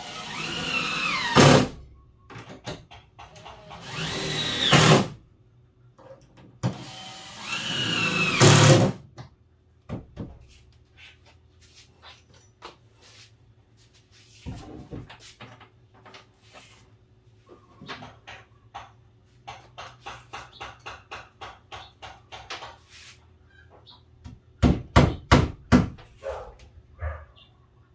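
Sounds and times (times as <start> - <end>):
cordless drill whine: 0.0 - 1.6, 3.8 - 4.9.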